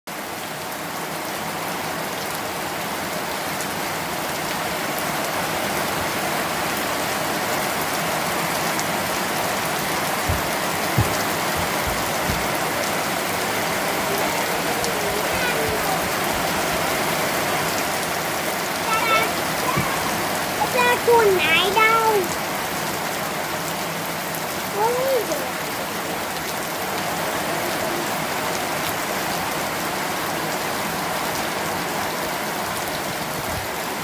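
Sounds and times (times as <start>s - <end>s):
heavy rain hissing: 0.2s - 34.0s
low thumps: 9.7s - 13.3s.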